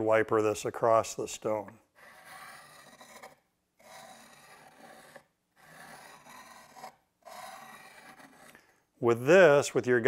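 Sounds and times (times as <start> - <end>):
blade scraping on sharpening stone: 2.0 - 8.6.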